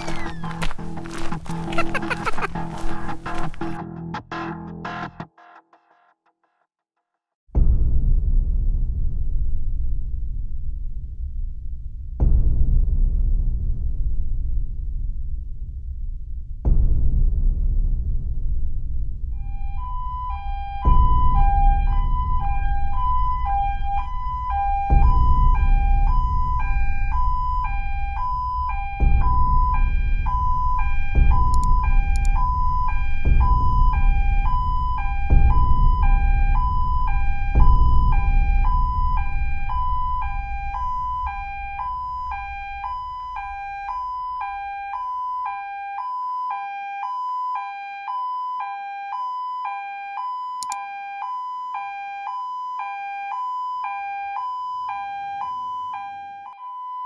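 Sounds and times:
low rumble: 7.6s - 19.5s
toy two-tone siren: 19.4s - 57.0s.

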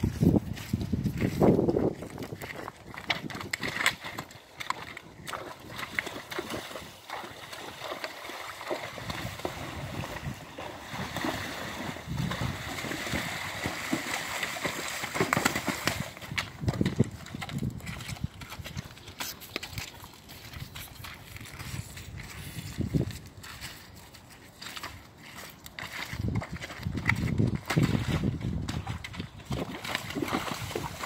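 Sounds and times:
pony splashing through water: 0.6s - 31.0s
hoof knocks on muddy bank: 2.1s - 21.2s, 25.7s - 31.0s.

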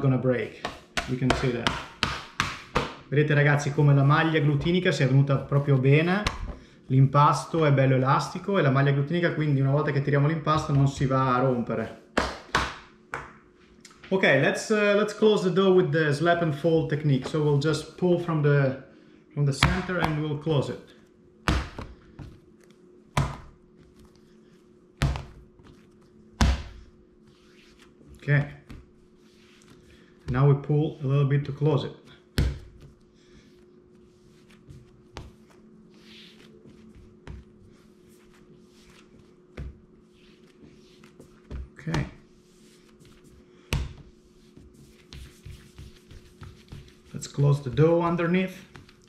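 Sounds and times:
faint steady hum: 0.0s - 49.0s
hands rubbing dough: 0.3s - 6.2s, 19.6s - 49.0s
dough slapped on stone counter: 0.6s - 3.0s, 12.2s - 13.4s, 23.2s - 23.5s.

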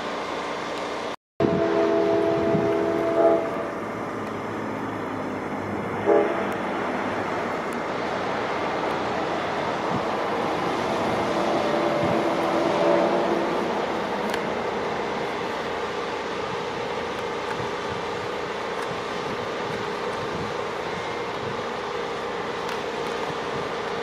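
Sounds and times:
train noise rushing: 0.0s - 24.0s
locomotive horn chord: 1.4s - 3.8s, 6.0s - 6.6s, 11.3s - 13.8s.

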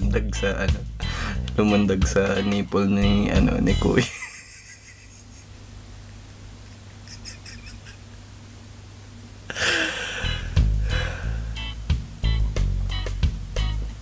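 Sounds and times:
man laughing: 4.0s - 5.7s, 6.6s - 8.2s, 9.5s - 10.5s.

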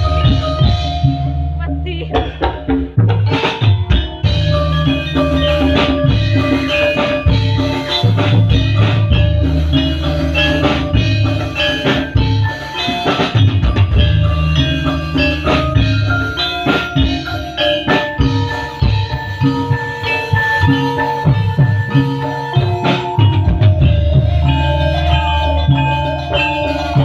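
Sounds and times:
deep held keyboard bass notes: 0.0s - 2.4s, 22.6s - 27.0s
drum kit hitting: 0.0s - 19.8s, 20.6s - 27.0s
hand drums: 0.0s - 27.0s
metallophone struck in quick runs: 0.0s - 27.0s.

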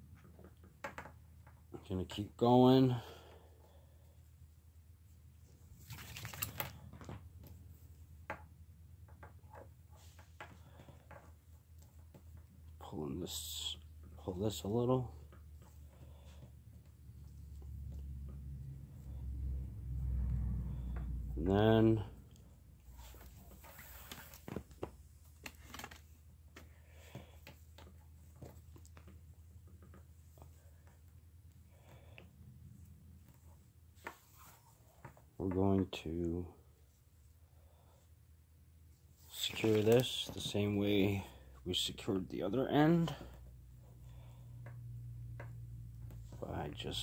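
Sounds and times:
low steady hum: 0.0s - 47.0s
cord handling ticks and rustles: 5.4s - 7.9s, 20.9s - 37.0s, 39.0s - 43.4s.

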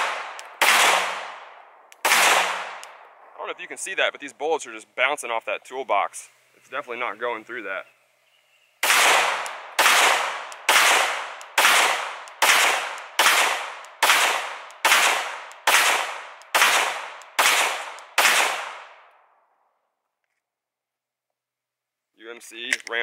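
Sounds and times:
pistol shots echoing: 0.0s - 3.4s, 8.8s - 19.4s.

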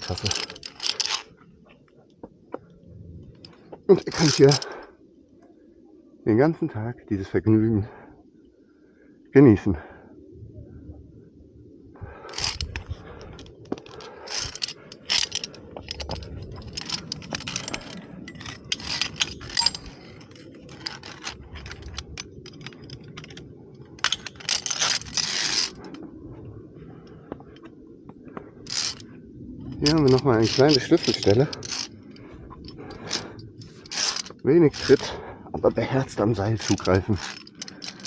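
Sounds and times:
carabiners clinking on steel cable: 0.0s - 1.3s, 3.4s - 4.8s, 12.3s - 26.0s, 28.6s - 29.1s, 29.7s - 38.0s.

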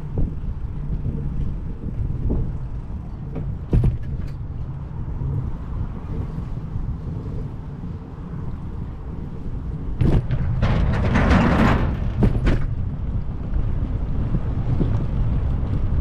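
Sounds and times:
bicycle knocks and rattles: 0.0s - 4.8s, 9.8s - 16.0s
wind and road noise rumble: 0.0s - 16.0s.

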